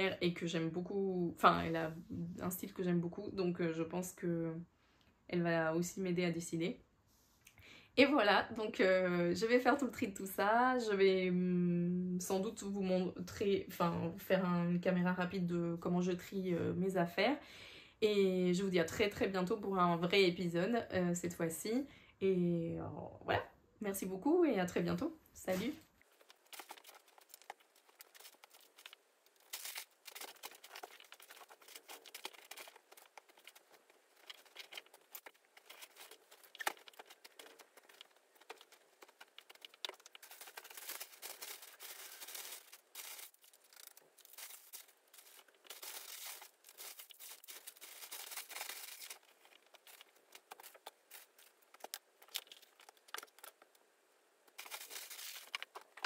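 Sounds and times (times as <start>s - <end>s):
plastic crinkling and rustling: 25.4s - 56.0s.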